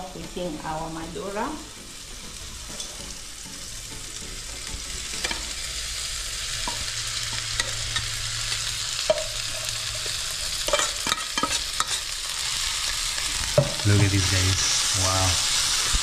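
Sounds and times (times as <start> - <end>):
food sizzling in a pan: 0.0 - 16.0
metal spoon scraping a pan: 6.6 - 12.2.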